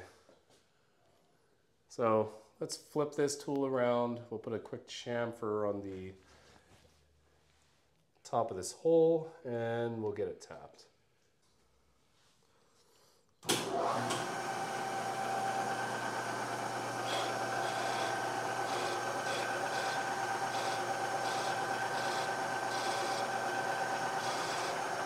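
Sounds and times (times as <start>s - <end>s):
milling machine spindle humming: 13.6s - 25.0s
chamfering tool cutting metal: 17.0s - 24.8s.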